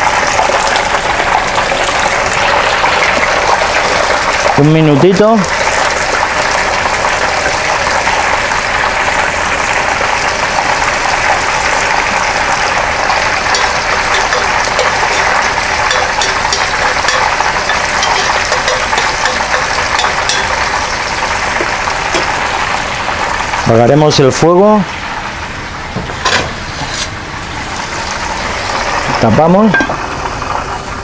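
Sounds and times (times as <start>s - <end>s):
food sizzling in pans: 0.0s - 23.7s, 24.9s - 31.0s
spoon stirring in pan: 13.3s - 22.4s.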